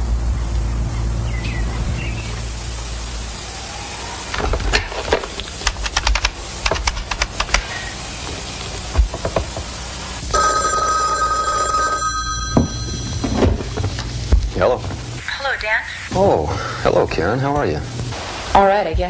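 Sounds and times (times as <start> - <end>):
telephone bell ringing: 10.3 - 14.0.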